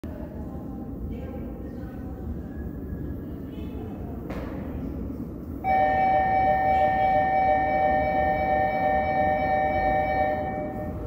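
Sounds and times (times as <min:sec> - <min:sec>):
two-note electronic alert tone: 0:05.7 - 0:11.0.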